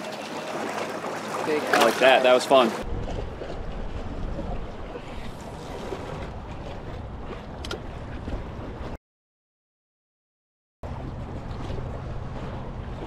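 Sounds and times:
water lapping around boat: 0.0 - 9.0, 10.8 - 13.0
wind buffeting microphone: 2.7 - 9.0.

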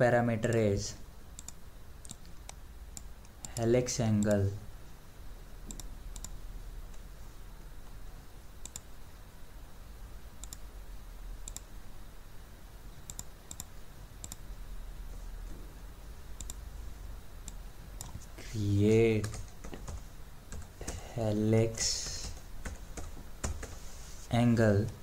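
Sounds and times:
low steady hum: 0.0 - 25.0
computer mouse clicks: 1.4 - 4.4, 5.6 - 7.0, 8.6 - 8.9, 10.4 - 10.6, 11.4 - 11.7, 13.0 - 14.4, 16.4 - 16.6, 17.4 - 18.3.

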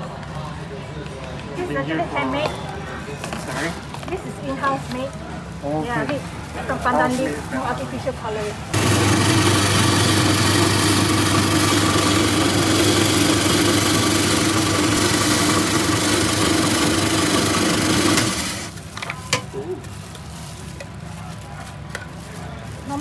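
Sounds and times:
ice-shaving machine motor humming: 8.7 - 18.9.

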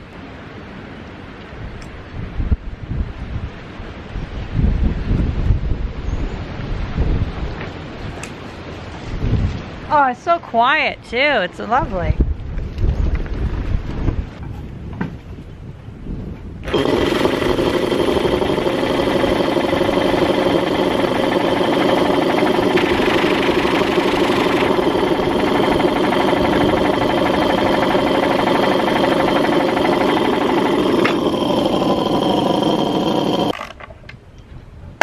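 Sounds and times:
air compressor pumping clatter: 16.6 - 33.8
air hissing: 16.7 - 33.6.

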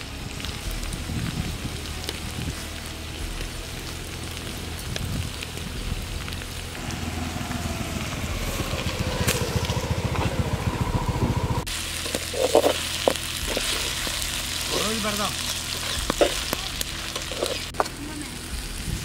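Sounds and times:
okra sizzling in a pan: 0.0 - 9.7, 11.6 - 19.0
low pulsing engine-like hum: 0.0 - 14.7
metal spatula scraping a pan: 12.0 - 14.6, 15.4 - 17.8.

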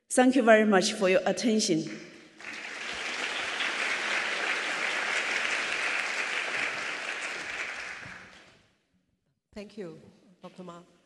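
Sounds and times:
audience applauding: 2.4 - 8.6.

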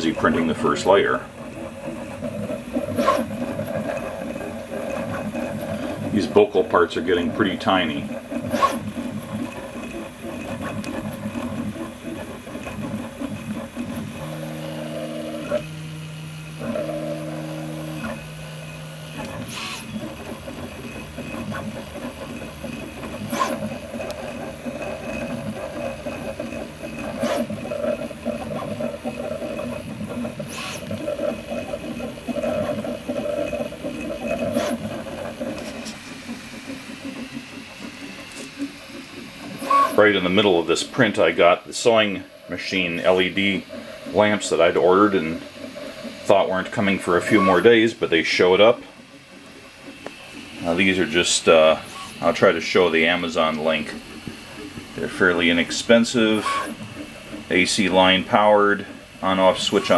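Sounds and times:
stepper motors whining: 0.0 - 59.9.

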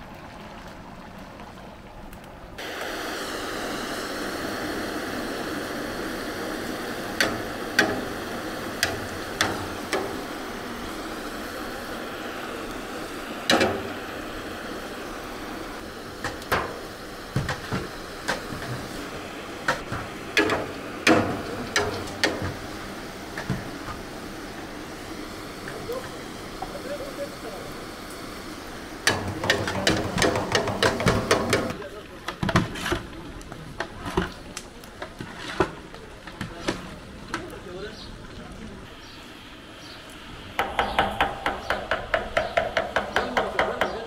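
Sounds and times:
steady rushing noise: 2.5 - 31.8
sharp knocks and clacks: 29.1 - 31.8.

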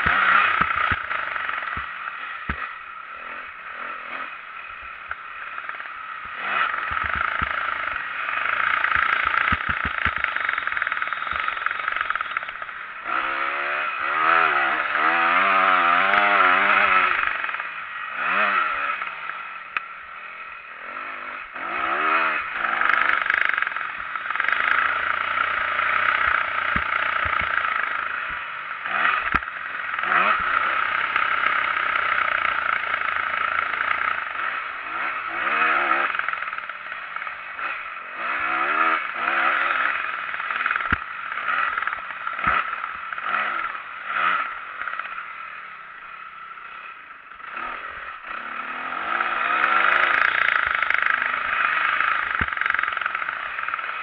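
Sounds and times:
bike clattering over bumps: 0.0 - 2.8, 5.0 - 12.8, 26.2 - 31.5
motorcycle engine revving: 0.0 - 54.0.

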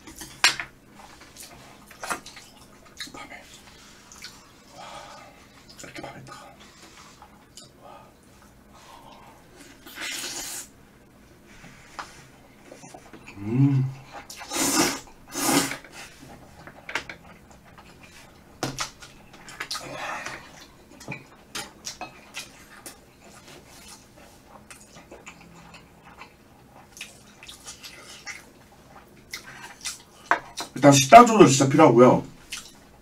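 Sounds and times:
chewing and wet mouth sounds: 1.0 - 10.7, 12.6 - 30.8, 32.4 - 32.9
slurping noodles: 14.2 - 16.2.

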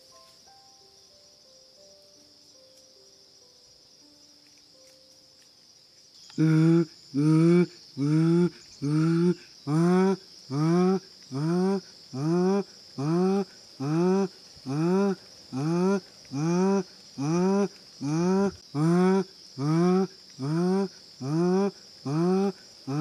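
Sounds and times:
insect buzz: 0.0 - 23.0
man hooting through cupped hands: 6.4 - 23.0.

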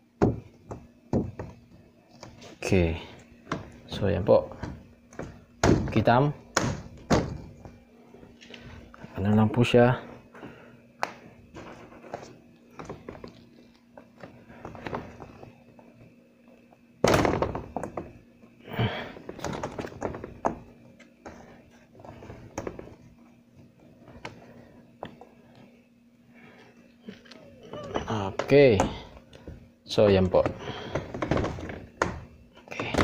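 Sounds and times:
plastic panels knocking and clicking: 0.2 - 2.4, 4.5 - 7.6, 30.1 - 33.0.

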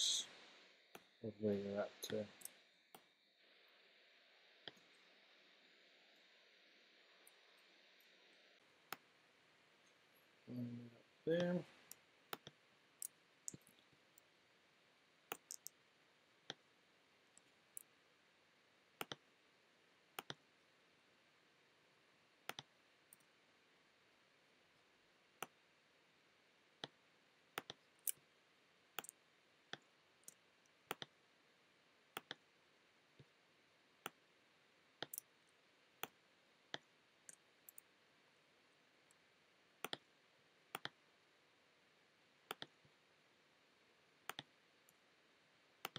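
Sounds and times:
faint room hiss: 0.0 - 45.9
computer mouse clicking: 12.3 - 14.3, 15.3 - 15.8, 19.0 - 19.2, 20.2 - 20.4, 22.5 - 23.3, 27.6 - 28.2, 29.0 - 31.1, 32.2 - 32.4, 35.0 - 35.3, 39.8 - 40.0, 40.7 - 41.0, 42.5 - 42.8, 44.3 - 44.5.

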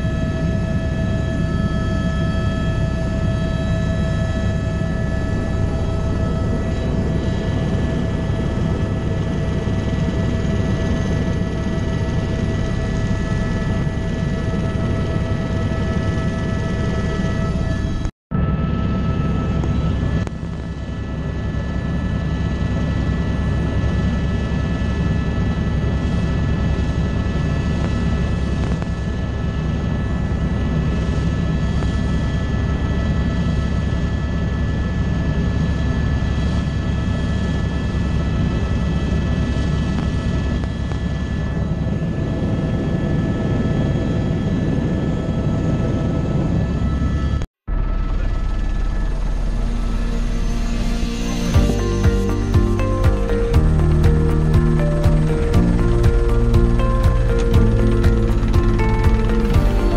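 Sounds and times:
helicopter cabin din: 54.0 - 59.9.

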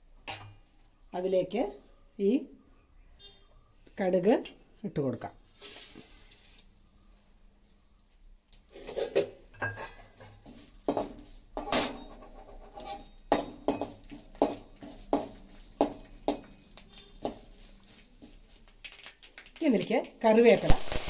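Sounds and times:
metal ladle scraping a metal pan: 8.7 - 10.7, 11.6 - 14.0.

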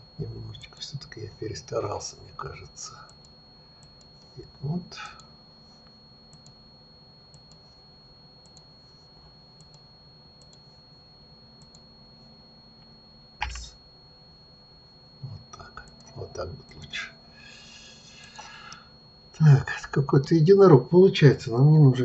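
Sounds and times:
faint hum: 0.0 - 22.0
mouse and keyboard clicks: 13.4 - 13.7.

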